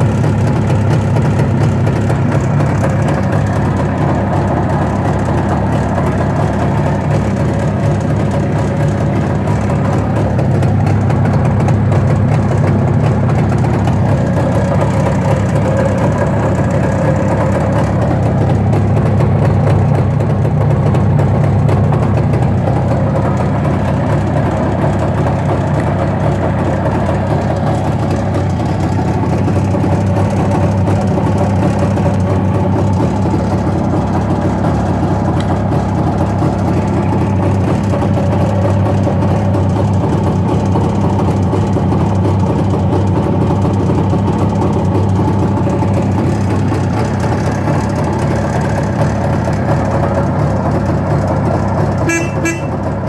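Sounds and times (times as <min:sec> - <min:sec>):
motorcycle engine idling: 0:00.0 - 0:53.0.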